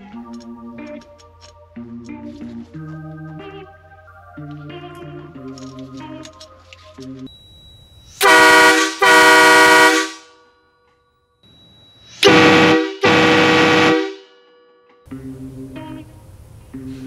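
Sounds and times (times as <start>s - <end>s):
train horn blasts on truck: 8.2s - 10.4s, 12.2s - 14.4s.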